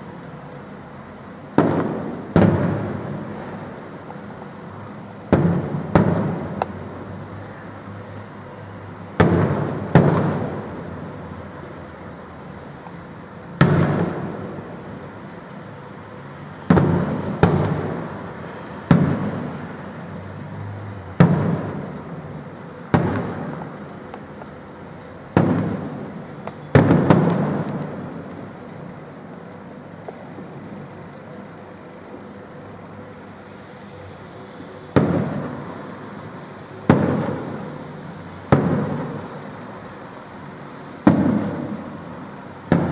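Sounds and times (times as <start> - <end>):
firework bangs echoing: 1.5 - 4.6, 5.2 - 7.2, 9.1 - 11.2, 13.6 - 14.8, 16.6 - 20.0, 21.1 - 24.5, 25.3 - 28.3, 34.9 - 40.1, 40.8 - 42.9.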